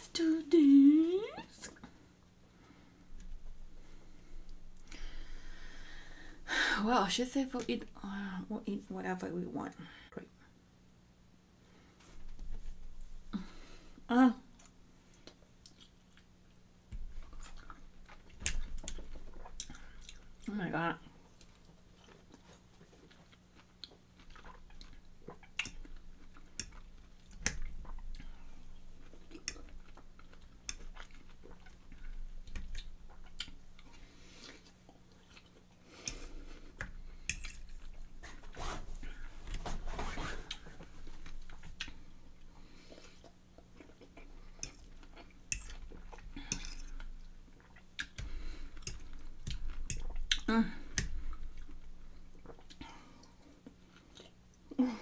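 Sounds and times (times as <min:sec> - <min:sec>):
person chewing juicy food: 0:14.6 - 0:16.4, 0:17.0 - 0:20.5, 0:21.2 - 0:39.6, 0:40.4 - 0:54.7.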